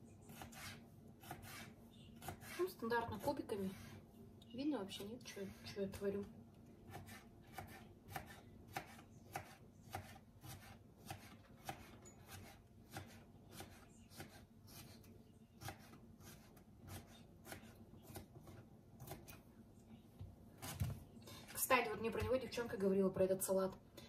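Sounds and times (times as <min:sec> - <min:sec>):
knife chopping on plastic board: 0:06.9 - 0:15.0.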